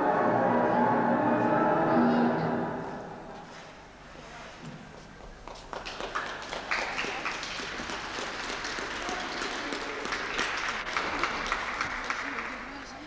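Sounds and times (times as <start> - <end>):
audience hand clapping: 5.2 - 13.0.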